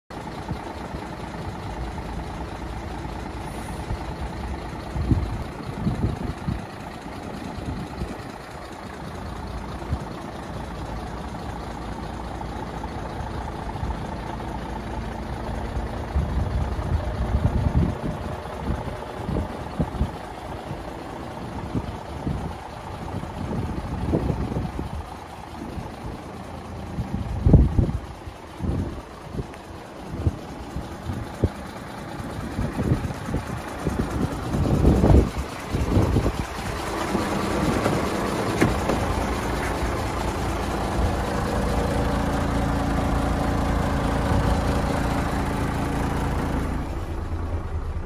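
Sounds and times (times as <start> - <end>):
diesel truck engine idling: 0.1 - 48.0
wind buffeting microphone: 4.8 - 8.4, 16.1 - 20.9, 21.5 - 26.2, 26.8 - 40.2.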